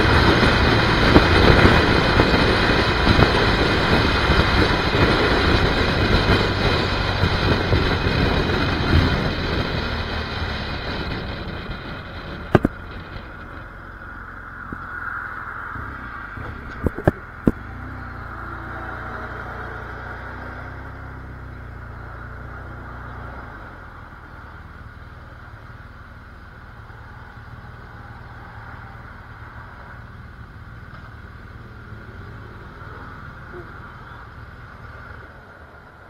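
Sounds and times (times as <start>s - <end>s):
motorcycle engine idling: 23.9s - 36.0s.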